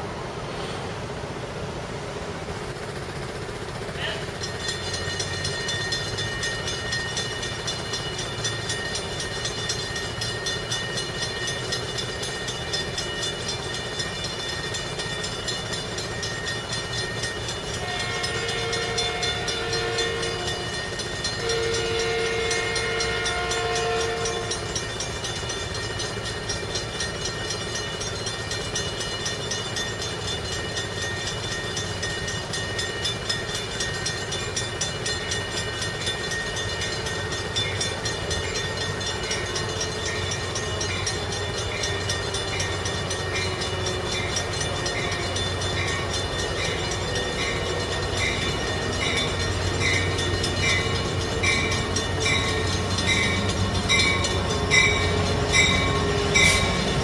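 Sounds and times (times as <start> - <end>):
crossing warning bell ringing: 3.3 - 57.0
train horn blasts: 17.8 - 20.7, 21.4 - 24.7.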